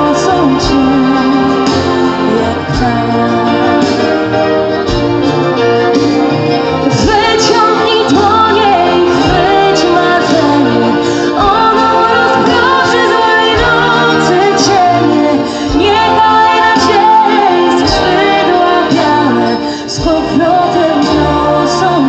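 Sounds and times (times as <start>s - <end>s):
woman singing into a microphone: 0.0s - 4.2s, 6.9s - 22.0s
symphony orchestra with strings: 0.0s - 22.0s.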